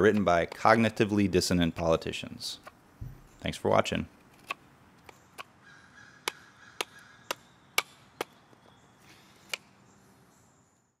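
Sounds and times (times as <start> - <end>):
knife cutting wood: 4.1 - 5.5.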